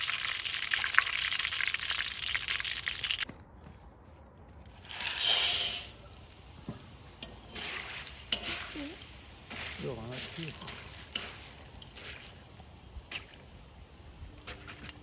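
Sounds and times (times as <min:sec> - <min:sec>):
oil sizzling: 0:00.0 - 0:03.2, 0:04.8 - 0:14.8
popcorn kernels poured into pot: 0:04.8 - 0:06.1, 0:07.2 - 0:13.4
wire skimmer scraping metal: 0:04.8 - 0:06.1, 0:07.1 - 0:12.5.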